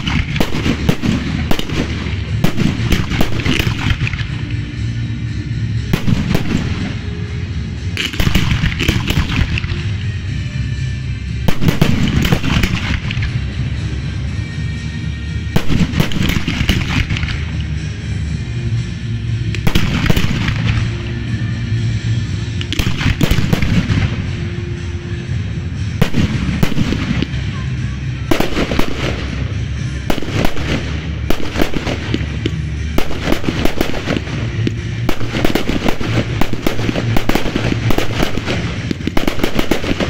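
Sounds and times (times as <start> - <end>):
fireworks bursting: 0.0 - 10.2, 11.2 - 13.9, 15.4 - 40.0
music playing: 0.0 - 40.0.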